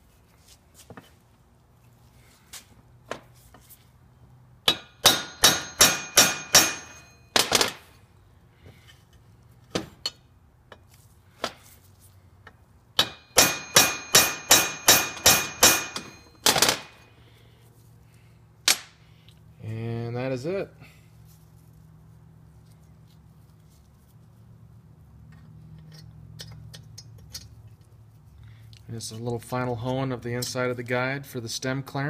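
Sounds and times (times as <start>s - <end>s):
hammer striking metal tool: 4.6s - 7.7s, 13.0s - 16.9s.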